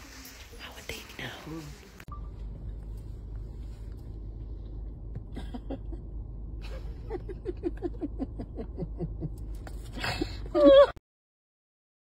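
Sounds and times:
car cabin rumble: 0:02.1 - 0:10.8.

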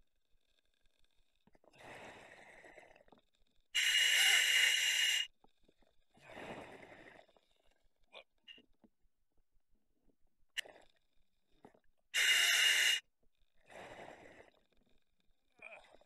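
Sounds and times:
diver breathing through regulator: 0:03.8 - 0:05.3, 0:12.2 - 0:13.0.

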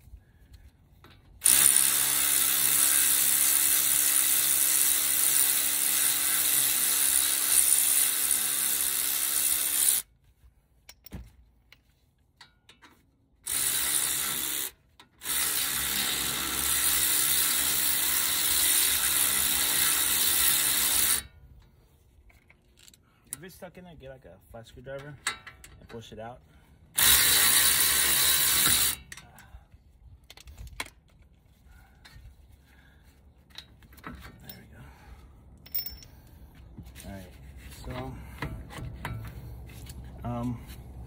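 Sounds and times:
electric ratchet wrench spinning: 0:01.4 - 0:10.0, 0:13.4 - 0:21.3, 0:27.0 - 0:29.1.

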